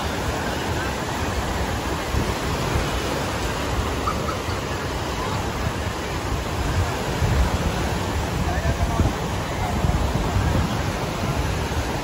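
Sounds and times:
low rumble of wind: 0.0 - 12.0
surf breaking on beach: 0.0 - 12.0.

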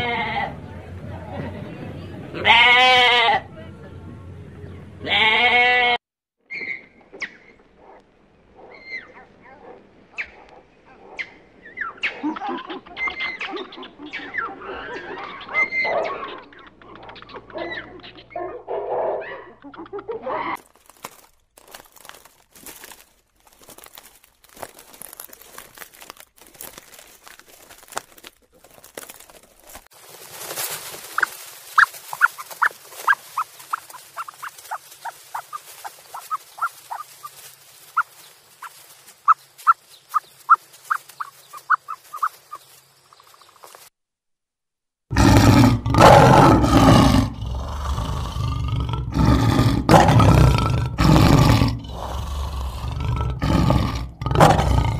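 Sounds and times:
lion roaring: 45.1 - 54.9.

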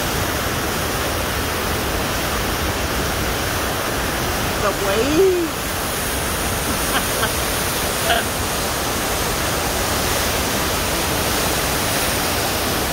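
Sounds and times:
river rushing through rapids: 0.0 - 12.9.

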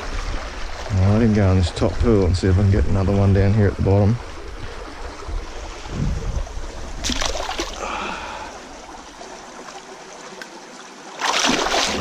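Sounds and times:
water trickling among rocks: 4.4 - 12.0.

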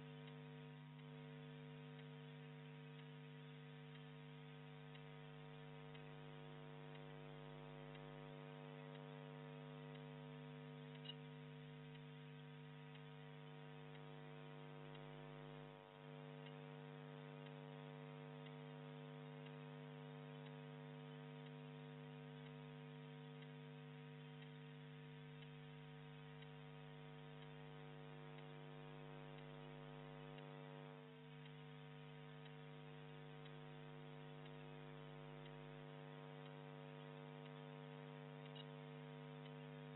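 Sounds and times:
faint electrical hum: 0.0 - 39.9
small click: 10.9 - 12.1, 38.4 - 39.7.

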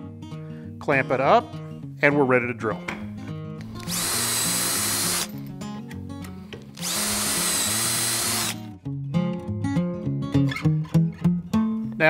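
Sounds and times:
acoustic guitar music: 0.0 - 7.4, 8.5 - 12.0
drill boring into wood: 3.7 - 5.3, 6.7 - 8.6.

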